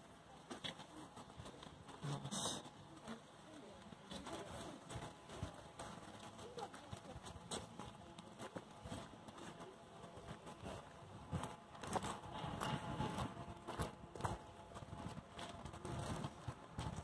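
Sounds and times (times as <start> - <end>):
footsteps crunching on gravel: 4.2 - 17.0.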